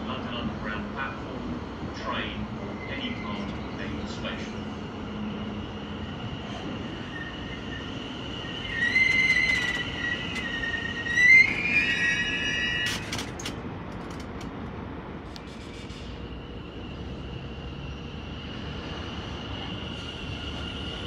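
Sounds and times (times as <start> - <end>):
electric train arriving: 0.0 - 21.0
high-pitched wheel and brake squeal: 5.3 - 13.1.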